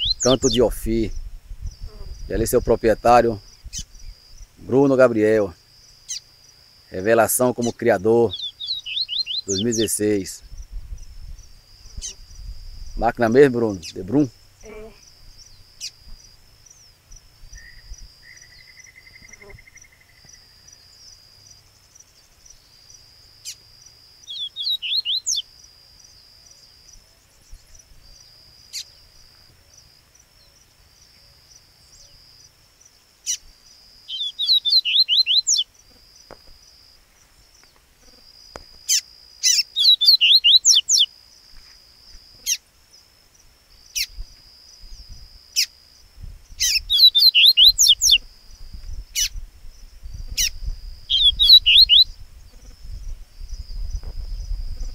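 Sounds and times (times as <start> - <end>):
bird singing sweeping notes: 0.0 - 5.0, 7.0 - 10.4, 17.5 - 21.0, 24.3 - 25.4, 34.1 - 35.7, 38.9 - 41.1, 46.6 - 48.2, 50.4 - 52.1.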